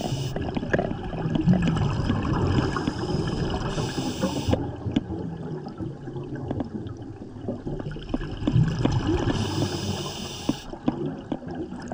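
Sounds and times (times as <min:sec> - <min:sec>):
high hiss: 0:00.0 - 0:00.4, 0:03.8 - 0:04.6, 0:09.4 - 0:10.7
underwater bubbling and gurgling: 0:00.0 - 0:11.9.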